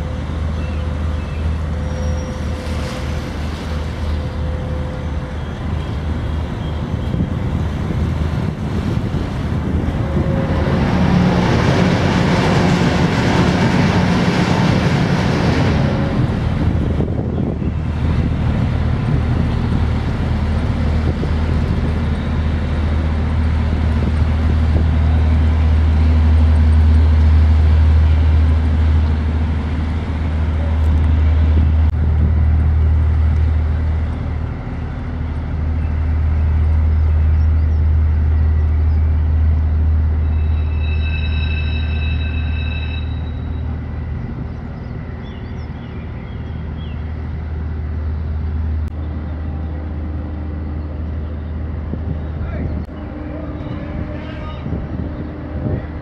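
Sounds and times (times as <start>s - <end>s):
ship diesel engines droning: 0.0s - 56.0s.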